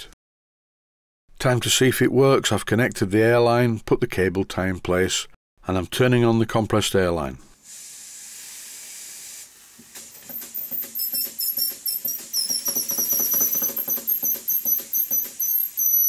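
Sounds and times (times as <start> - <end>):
compressed air hissing: 7.6 - 10.3
high squeak of air: 10.1 - 16.0
model engine knocking: 12.4 - 15.3.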